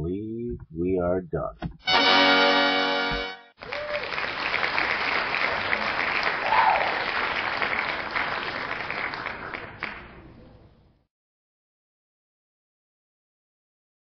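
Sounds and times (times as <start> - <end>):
crowd applauding: 3.6 - 10.4.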